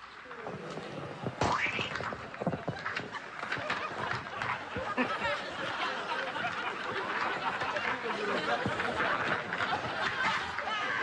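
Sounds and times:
snickering and chuckling laughter: 0:03.1 - 0:10.5
low murmured talk: 0:04.2 - 0:11.0.

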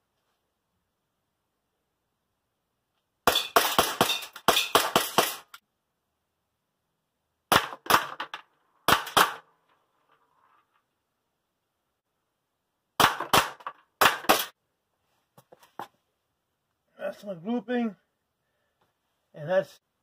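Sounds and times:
airsoft pistol shots: 0:07.5 - 0:08.3, 0:08.9 - 0:09.5, 0:13.0 - 0:14.5.

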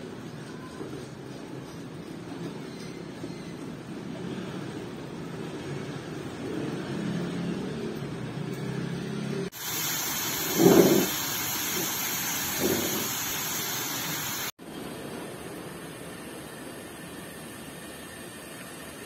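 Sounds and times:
heating pack fizzing hiss: 0:09.5 - 0:14.6.

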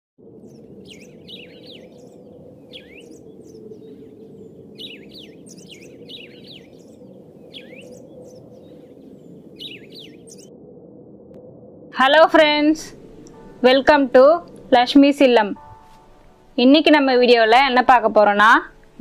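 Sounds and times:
small birds chirping: 0:00.4 - 0:10.5.

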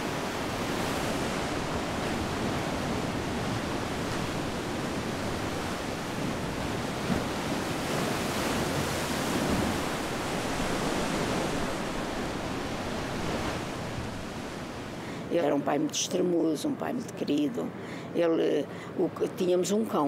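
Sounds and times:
sea surf washing: 0:00.0 - 0:15.6
wind: 0:00.0 - 0:20.0.

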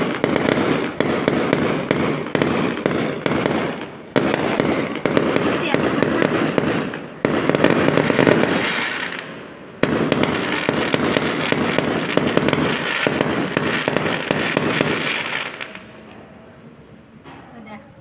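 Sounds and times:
firework bangs: 0:00.0 - 0:16.1
firework crackling: 0:00.0 - 0:16.1.

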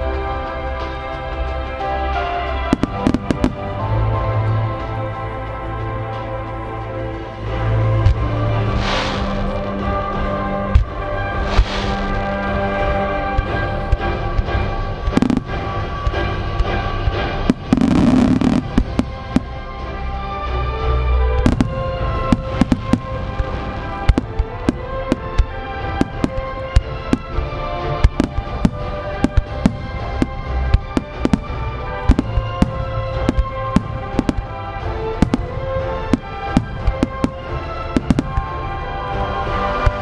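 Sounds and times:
music: 0:00.0 - 0:40.0.

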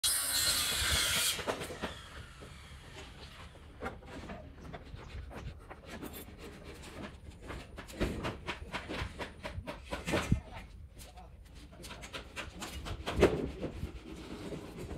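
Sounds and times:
timber and metal clatter: 0:03.0 - 0:10.6.

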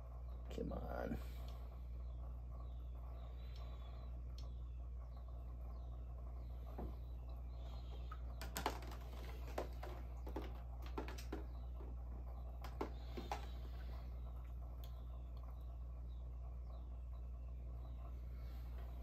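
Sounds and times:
steady low hum: 0:00.0 - 0:19.0
light irregular clicks and taps: 0:04.3 - 0:04.6.

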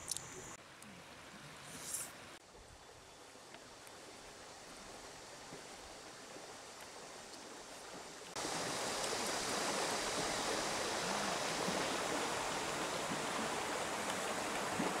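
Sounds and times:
faint riverside ambience: 0:00.0 - 0:15.0
river water rushing: 0:04.0 - 0:15.0.

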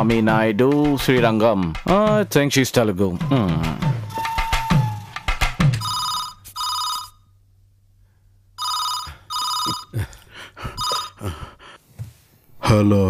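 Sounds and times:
telephone ringing: 0:05.8 - 0:07.3, 0:08.6 - 0:10.0, 0:10.8 - 0:11.2.

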